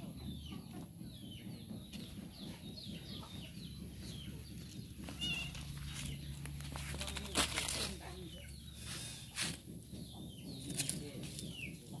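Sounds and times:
chicks peeping: 0.0s - 12.0s
rustling and handling noise: 5.0s - 8.3s.

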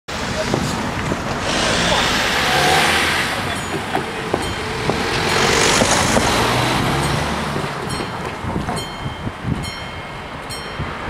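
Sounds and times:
cars driving past: 0.1s - 11.0s
crossing warning bell ringing: 2.4s - 11.0s.

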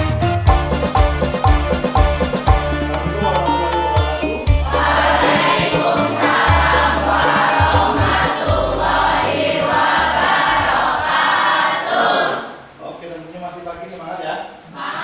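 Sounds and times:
bass line: 0.0s - 9.3s
choir-like group singing: 4.6s - 12.7s, 14.7s - 15.0s.

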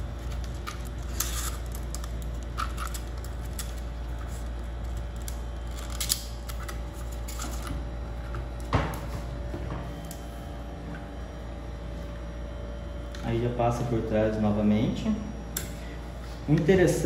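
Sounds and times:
steady low hum: 0.0s - 17.0s
steel cable scraping and rustling: 0.2s - 6.1s.

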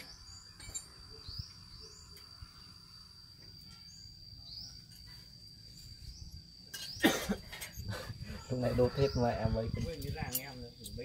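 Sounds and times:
insect rising chirps: 0.0s - 8.6s
insect high-pitched whine: 0.0s - 11.0s.

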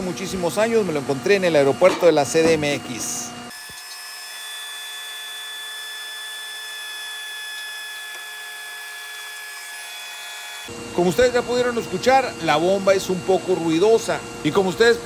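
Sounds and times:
cordless drill whining: 3.5s - 9.6s.

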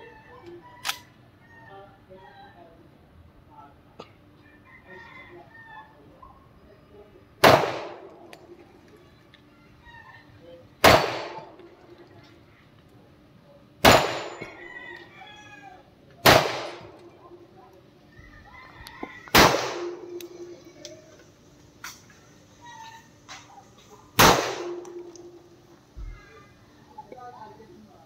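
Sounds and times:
pistol shots with echo: 7.4s - 8.6s, 10.8s - 11.7s, 13.8s - 14.6s, 16.2s - 17.1s, 19.3s - 20.4s, 24.2s - 25.4s.

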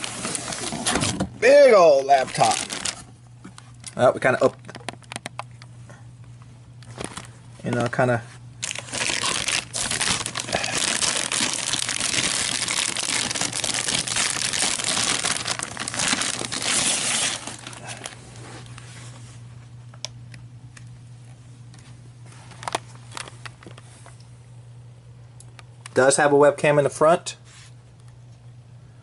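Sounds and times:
plastic wrapping crinkling: 0.0s - 5.5s, 6.8s - 8.0s, 8.6s - 18.9s, 22.2s - 24.2s.

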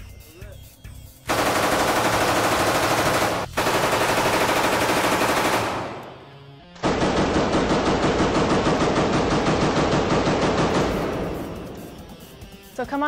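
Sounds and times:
gunfire echo: 1.3s - 6.2s, 6.8s - 12.2s
submachine gun firing bursts: 1.3s - 6.2s, 6.8s - 11.9s.

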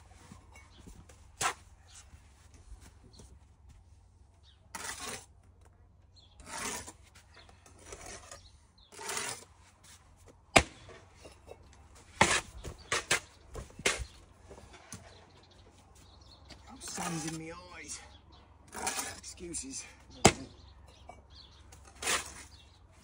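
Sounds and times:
trowel scraping mortar: 4.7s - 5.4s, 6.4s - 10.0s, 10.8s - 14.2s, 16.8s - 17.8s, 18.7s - 20.4s, 21.7s - 22.8s.

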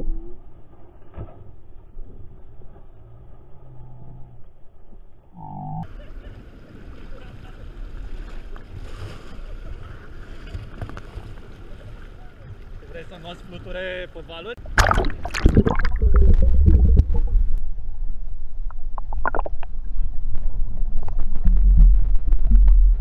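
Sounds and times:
water splashing: 14.6s - 17.8s.

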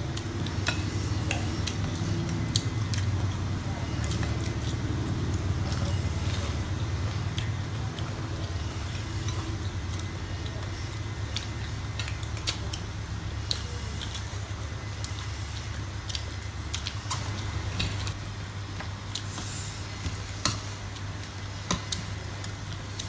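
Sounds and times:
steady low hum: 0.0s - 23.0s
cutlery clicking on plates: 0.5s - 3.1s.

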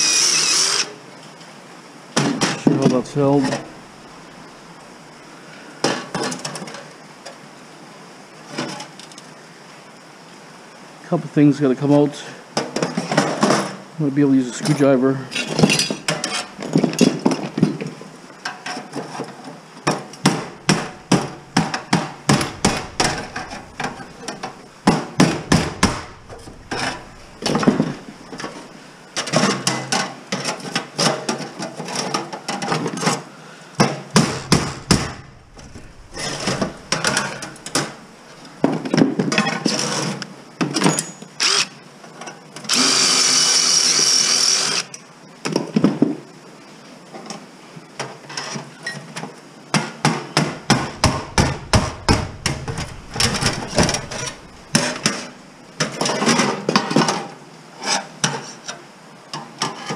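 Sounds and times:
cordless drill running: 0.0s - 0.9s, 42.7s - 44.9s
metal clanks and rattles: 20.2s - 31.2s, 34.3s - 39.6s, 50.5s - 57.0s.

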